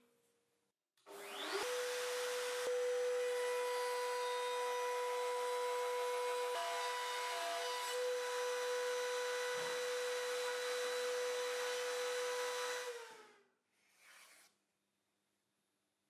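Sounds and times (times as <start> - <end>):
router whining and spinning down: 1.1 - 13.4
soft scrape: 13.8 - 14.6.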